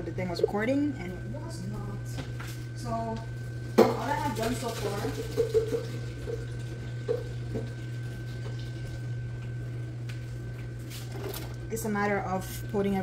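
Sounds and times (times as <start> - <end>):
low electrical hum: 0.0 - 13.0
water running or splashing: 3.7 - 9.6.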